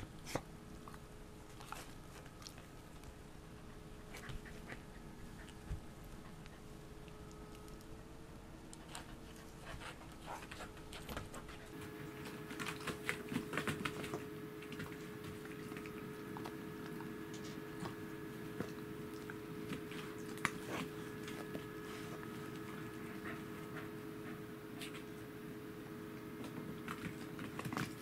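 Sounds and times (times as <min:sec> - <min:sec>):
faint steady hum: 0:00.0 - 0:28.0
paws clicking on wooden floor: 0:08.8 - 0:25.1.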